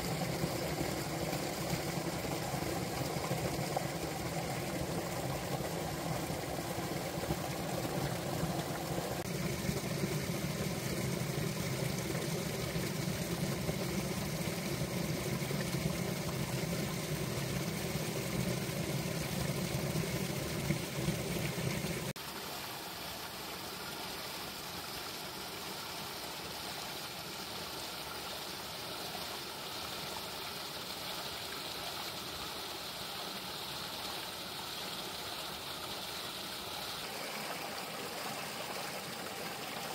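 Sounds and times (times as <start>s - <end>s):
stream gurgling under ice: 0.0s - 39.9s
cascade splashing over rocks: 36.9s - 39.9s.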